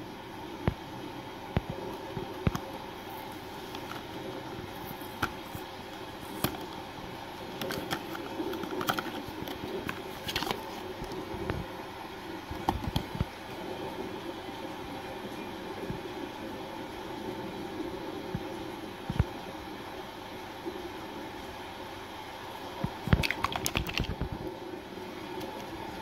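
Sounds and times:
steady background hum: 0.0s - 26.0s
cardboard scraping rustle: 7.6s - 11.2s.

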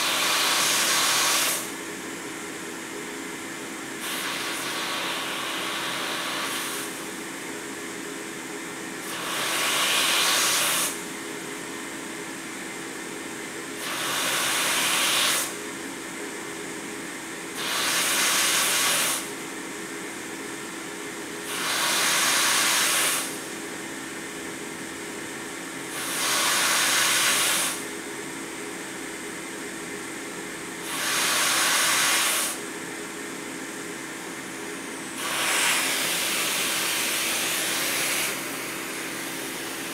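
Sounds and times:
ventilator air rush: 0.0s - 2.8s, 3.4s - 7.8s, 8.8s - 11.3s, 13.7s - 15.8s, 17.3s - 19.5s, 21.2s - 23.8s, 25.1s - 28.8s, 29.9s - 39.9s
ventilator blower hum: 0.0s - 39.9s.

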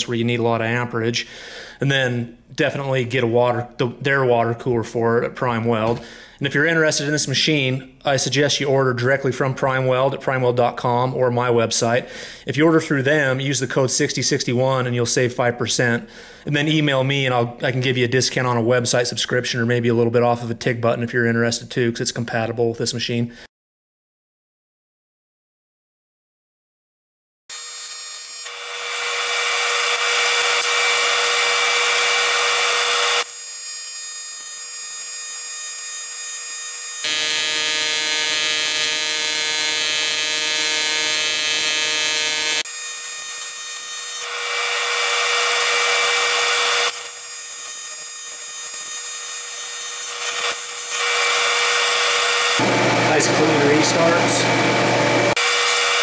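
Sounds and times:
welding arc buzzing: 27.5s - 56.0s.

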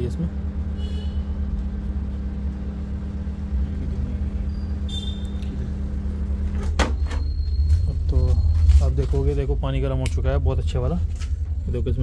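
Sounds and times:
microwave oven humming: 0.0s - 9.0s.

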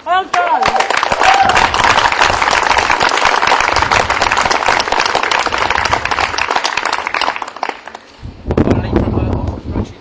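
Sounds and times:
crowd applauding: 0.3s - 8.1s.

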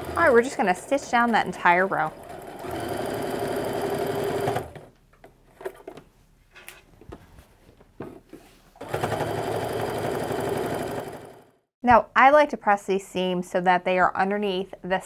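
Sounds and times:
sewing machine stitching: 0.0s - 4.9s, 8.8s - 11.5s.

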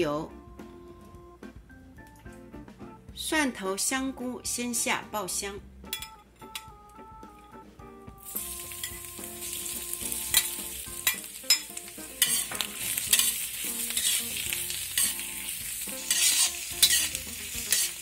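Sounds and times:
food sizzling in hot oil: 8.2s - 18.0s
metal spatula scraping wok: 8.4s - 18.0s.

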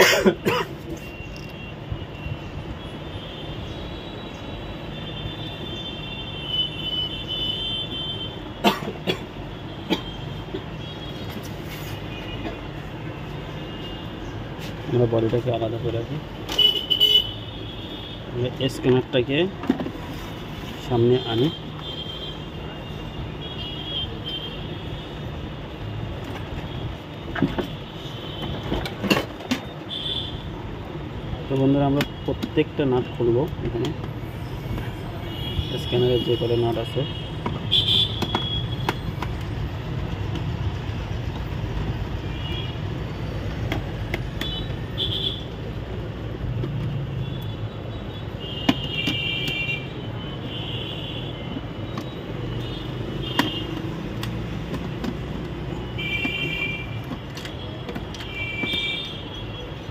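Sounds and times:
steady background noise: 0.0s - 59.9s
plastic parts clicking: 56.2s - 59.0s.

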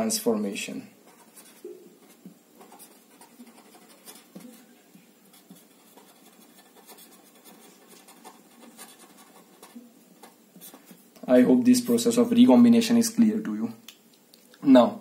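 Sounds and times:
marker pen scratching on paper: 1.0s - 11.0s.

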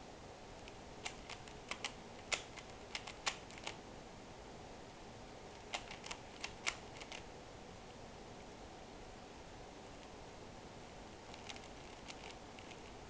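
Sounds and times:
puzzle cube clicking: 0.6s - 3.8s, 5.6s - 7.2s, 11.3s - 13.0s.

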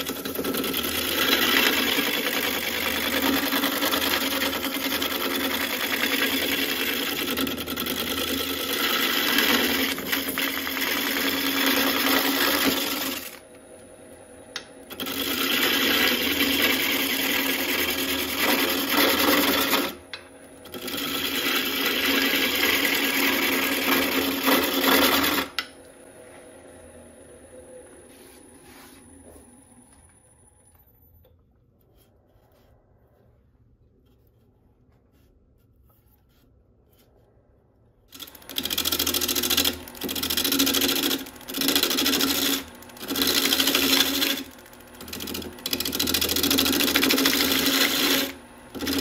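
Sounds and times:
gouge cutting wood on lathe: 0.0s - 13.5s, 14.6s - 25.8s, 38.1s - 49.0s
lathe humming: 0.0s - 30.5s, 38.1s - 49.0s.

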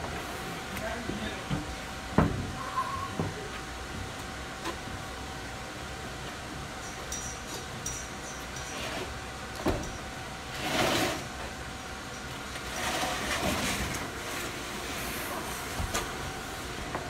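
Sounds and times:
drywall sheets scraping and sliding: 10.5s - 11.4s, 12.6s - 16.2s.

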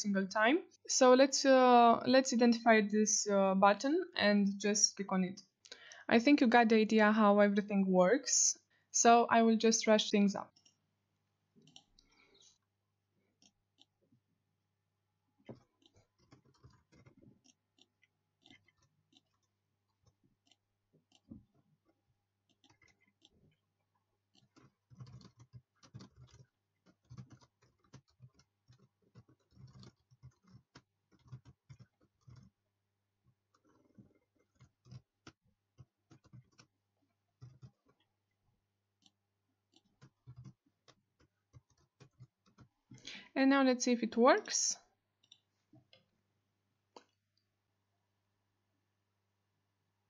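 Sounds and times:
keyboard and mouse clicking: 24.4s - 32.5s, 39.0s - 43.2s.

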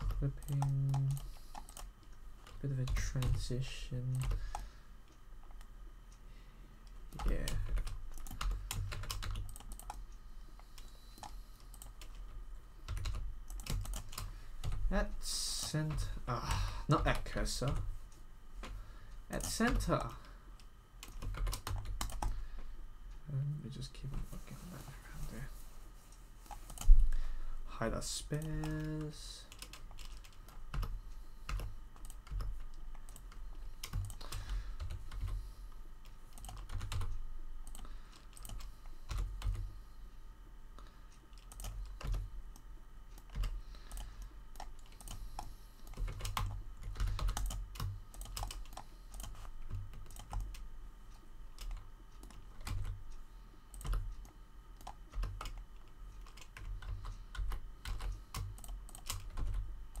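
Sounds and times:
computer keyboard typing: 0.0s - 4.7s, 7.1s - 16.2s, 16.9s - 17.9s, 18.6s - 20.4s, 21.0s - 22.5s, 26.5s - 27.2s, 28.0s - 35.4s, 36.0s - 39.7s, 41.3s - 42.6s, 43.2s - 50.7s, 51.6s - 53.1s, 53.7s - 60.0s.

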